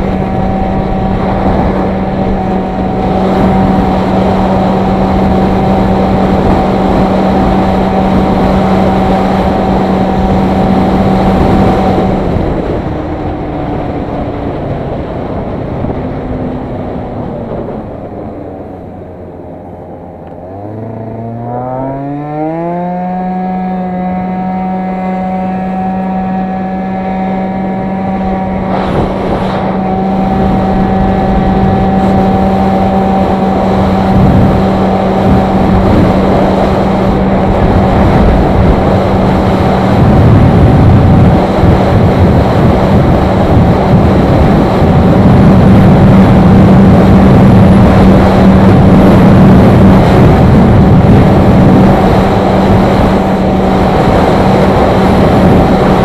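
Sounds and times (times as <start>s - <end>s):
scooter engine at full throttle: 0.0s - 56.0s
wind rush on microphone: 0.0s - 56.0s.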